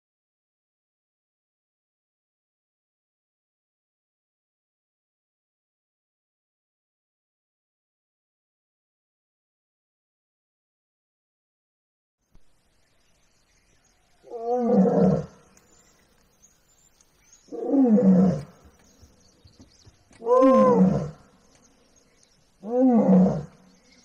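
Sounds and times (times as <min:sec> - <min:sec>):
lion roaring: 0:14.2 - 0:15.4, 0:17.5 - 0:18.6, 0:20.2 - 0:21.3, 0:22.6 - 0:23.6.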